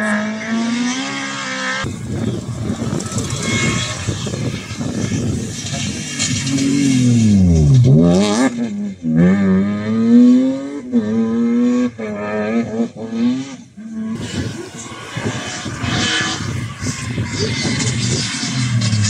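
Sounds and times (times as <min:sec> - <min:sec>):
rally car engine revving: 0:00.0 - 0:19.0
even rushing noise: 0:01.8 - 0:07.8, 0:14.2 - 0:19.0.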